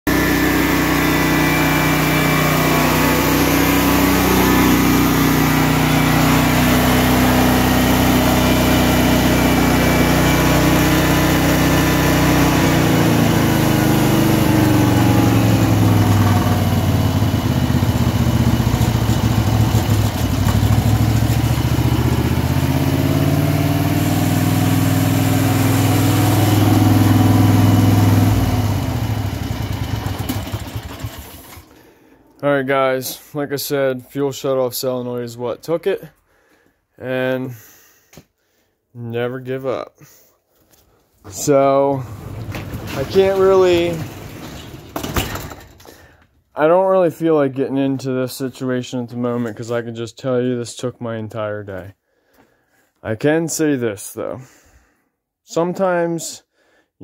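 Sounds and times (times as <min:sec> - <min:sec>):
generator engine running: 0:00.1 - 0:32.2, 0:41.4 - 0:46.0.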